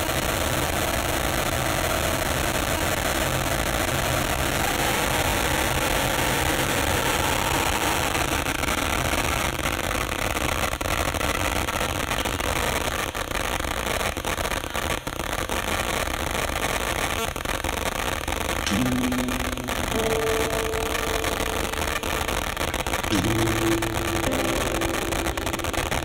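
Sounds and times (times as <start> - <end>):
electroacoustic noise drone: 18.7 - 26.0
faint held tone: 18.7 - 26.0.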